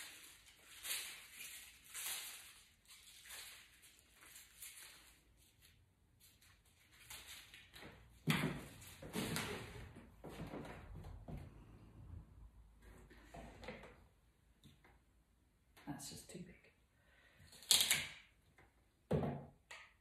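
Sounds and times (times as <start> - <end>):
leafy stems rustling in hands: 0.0 - 8.1.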